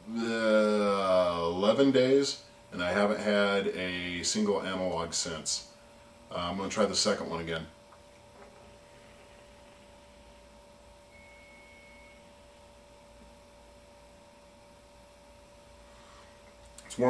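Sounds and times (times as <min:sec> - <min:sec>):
faint electrical hum: 0:00.0 - 0:17.0
thin high tone: 0:11.1 - 0:12.4.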